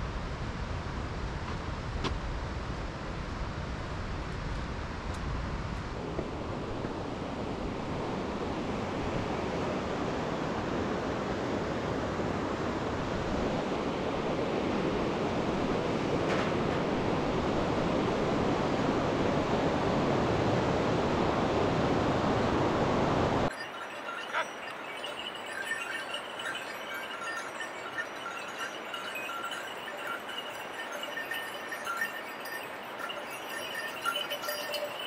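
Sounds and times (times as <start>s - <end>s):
river whitewater roar: 16.9s - 35.0s.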